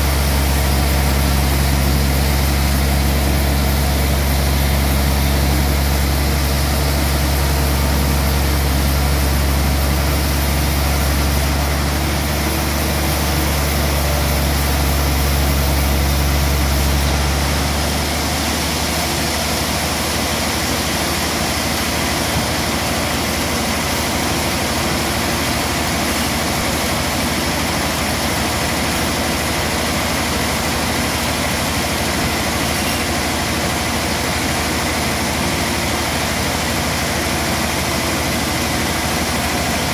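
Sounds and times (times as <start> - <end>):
band saw running: 0.0 - 39.9.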